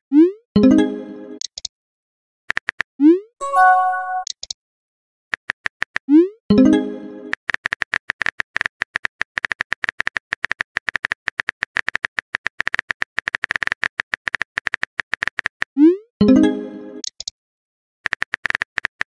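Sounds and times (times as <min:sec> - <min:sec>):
message sent pop and tone: 0:03.4 - 0:04.3
keyboard typing clicks: 0:17.0 - 0:17.3.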